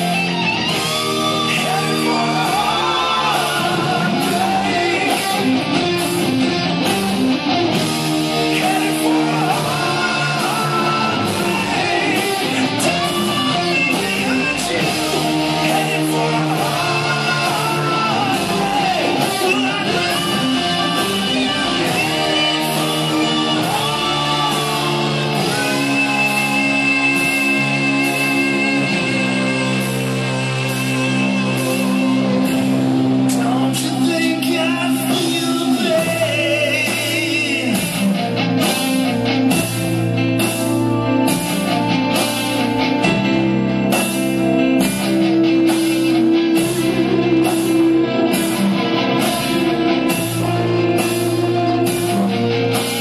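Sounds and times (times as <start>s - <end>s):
electric guitar lead: 0.0s - 53.0s
rock chords accompaniment: 0.0s - 53.0s.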